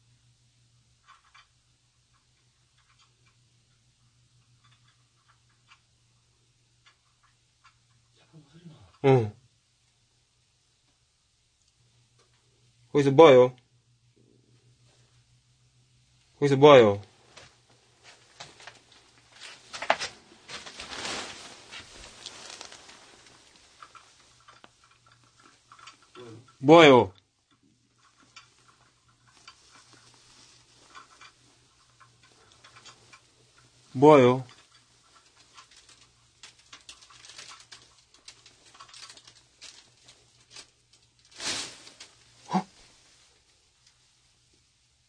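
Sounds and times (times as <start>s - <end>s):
faint scratching and tapping: 0.9s - 9.0s, 17.1s - 26.6s, 27.3s - 44.7s
faint rustling: 17.0s - 26.6s, 27.4s - 44.8s
loud rustle: 19.3s - 24.2s, 35.5s - 43.1s
short voice-like sound: 42.5s - 42.7s.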